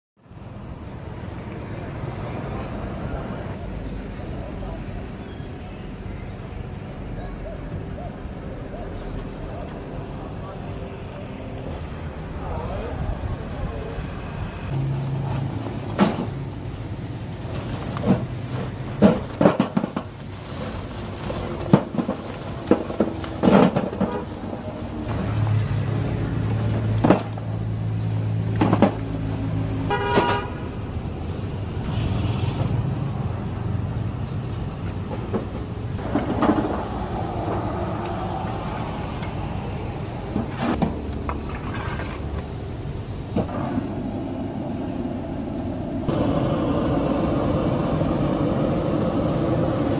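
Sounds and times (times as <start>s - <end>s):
street traffic hum: 0.2s - 49.9s
charcoal clattering into metal bin: 17.4s - 24.8s
car horn toot: 29.9s - 30.8s.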